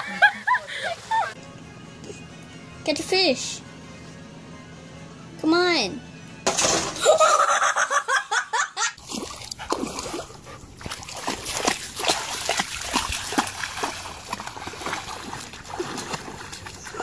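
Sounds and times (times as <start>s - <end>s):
person laughing loudly: 0.0s - 1.4s, 7.0s - 9.0s
dog splashing through water: 9.0s - 17.0s.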